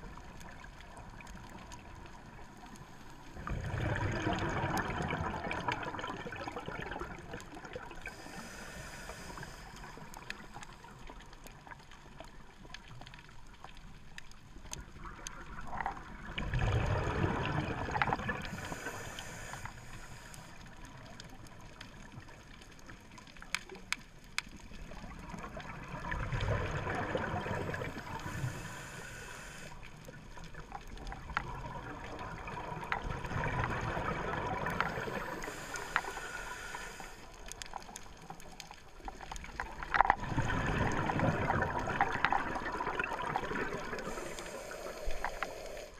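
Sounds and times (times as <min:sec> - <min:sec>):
exhaled bubbles rumbling: 0:00.0 - 0:08.3, 0:09.8 - 0:19.4, 0:24.6 - 0:28.8, 0:29.9 - 0:35.9, 0:37.5 - 0:45.4
regulator inhale hiss: 0:08.0 - 0:10.9, 0:18.4 - 0:21.0, 0:27.5 - 0:29.9, 0:34.8 - 0:37.6, 0:43.8 - 0:45.9.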